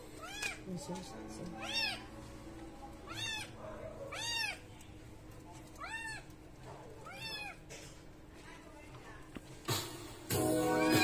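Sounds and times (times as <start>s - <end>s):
kitten mewing: 3.0s - 4.6s, 7.0s - 7.7s, 10.7s - 11.0s.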